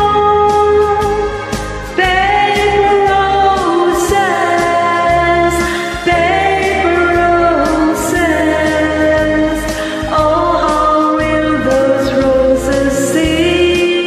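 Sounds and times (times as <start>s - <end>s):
backing track: 0.0s - 14.0s
woman singing a slow ballad: 0.0s - 14.0s.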